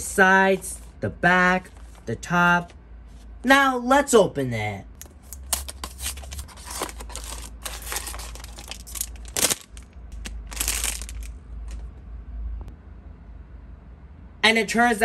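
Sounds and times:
cardboard and foil rustling: 5.2s - 11.3s.

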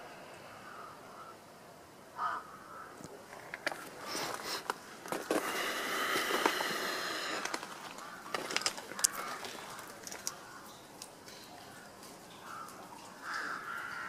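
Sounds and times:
crow cawing: 0.5s - 1.5s, 2.2s - 3.0s, 5.4s - 14.0s
footsteps crunching on rubble and leaves: 3.3s - 12.7s.

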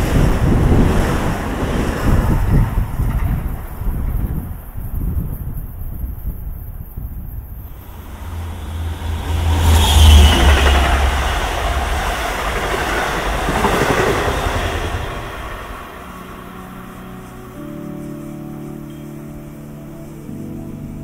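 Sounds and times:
wheels clattering on rails: 0.0s - 17.3s
deep train engine rumble: 0.0s - 21.0s
high squeal falling in pitch: 7.8s - 11.8s.

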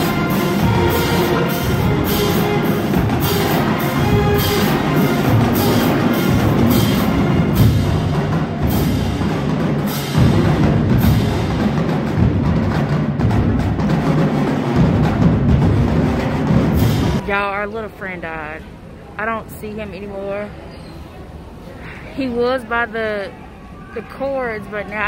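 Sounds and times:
cymbal crashes: 0.0s - 11.8s
marching band playing: 0.0s - 17.5s.

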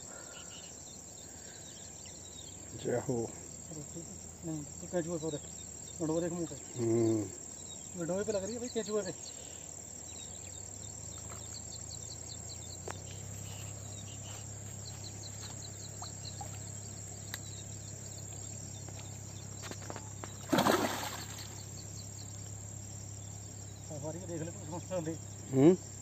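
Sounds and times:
insects droning and chirping: 0.0s - 26.0s
fish splashing at surface: 20.5s - 21.6s.

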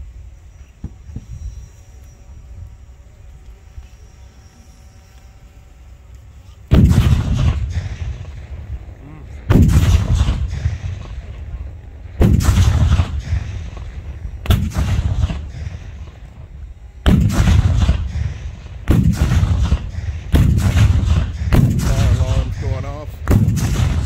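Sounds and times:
cannons firing with rumbling echo: 6.7s - 24.0s.

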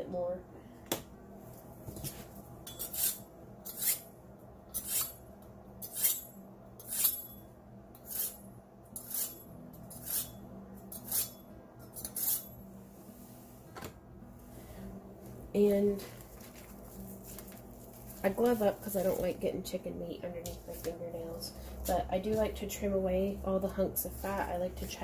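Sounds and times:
knife scraping in sharpener: 2.7s - 4.1s, 4.7s - 5.2s, 5.8s - 7.4s, 8.0s - 8.4s, 9.0s - 12.6s.

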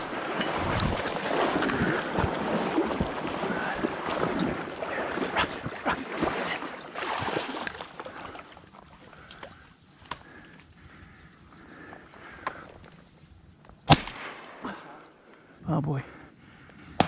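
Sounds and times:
water sloshing: 0.0s - 11.0s.

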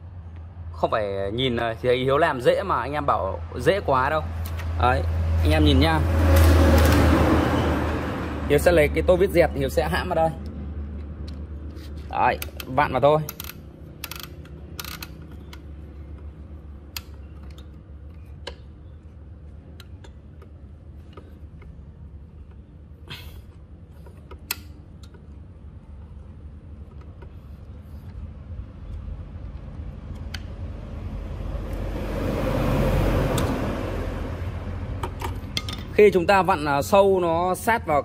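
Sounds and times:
vehicle passing: 2.6s - 13.0s, 29.9s - 36.5s
sharp metal clicks: 12.3s - 18.7s.

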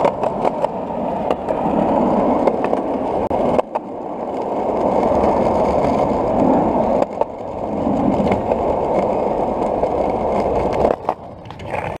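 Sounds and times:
skateboard wheels rolling on concrete: 0.0s - 12.0s.

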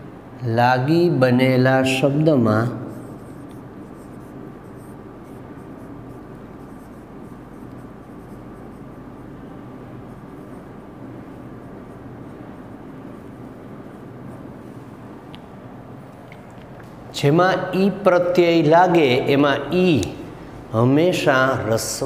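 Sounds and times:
low background hum: 0.0s - 22.0s
marker writing on whiteboard: 2.9s - 10.8s.

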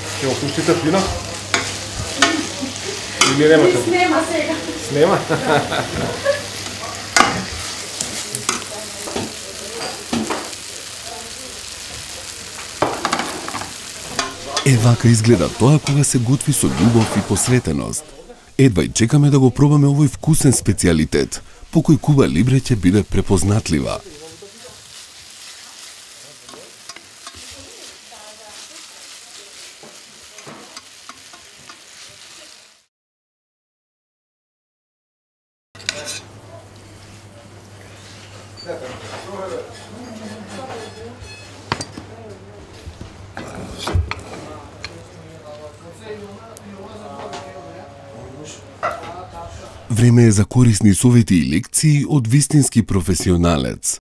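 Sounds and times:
vegetables sizzling in a pan: 0.0s - 32.9s, 35.8s - 49.8s
spatula scraping a pan: 24.7s - 32.3s, 37.9s - 41.6s.

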